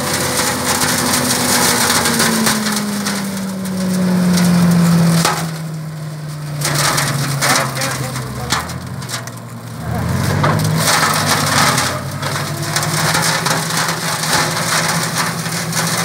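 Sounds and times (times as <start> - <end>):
crackling of chopped wood: 0.0 - 16.0
tractor and rotor hum: 0.0 - 16.0.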